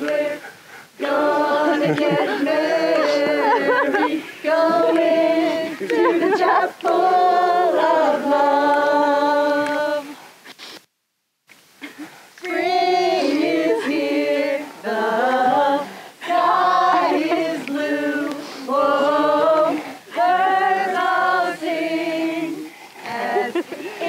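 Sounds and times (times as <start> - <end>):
woman singing slow song: 0.0 - 10.3, 12.4 - 24.0.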